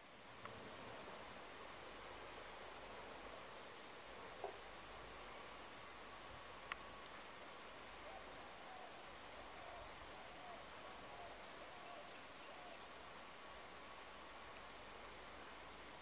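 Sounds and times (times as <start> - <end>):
insect drone: 0.0 - 16.0.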